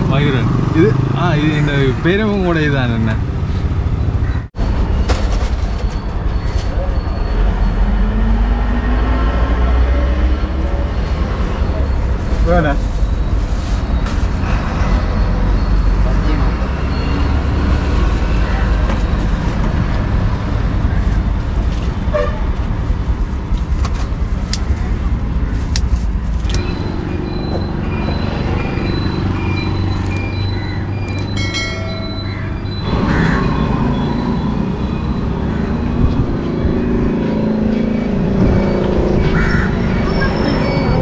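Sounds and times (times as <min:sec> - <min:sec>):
street traffic rumble: 0:00.0 - 0:41.0
vehicle horn toot: 0:22.1 - 0:22.4
vehicle engine passing: 0:31.8 - 0:41.0.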